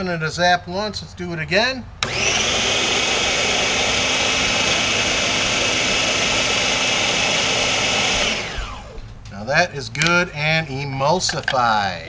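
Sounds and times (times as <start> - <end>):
food processor motor running: 2.0 - 9.0.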